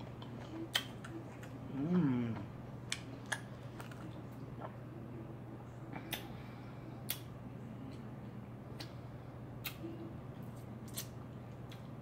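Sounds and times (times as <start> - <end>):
person eating and lip smacking: 0.0 - 4.9, 5.9 - 6.4, 7.0 - 7.3, 9.6 - 12.0
steady low hum: 0.0 - 12.0.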